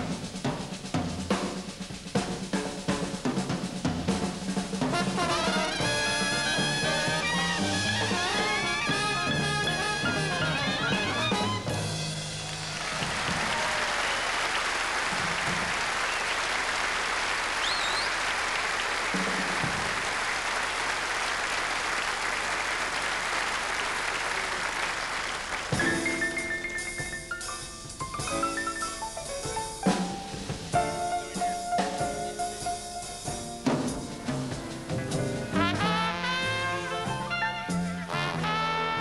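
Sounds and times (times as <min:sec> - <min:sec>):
jazz band playing: 0:00.0 - 0:39.0
audience applauding: 0:12.2 - 0:26.0.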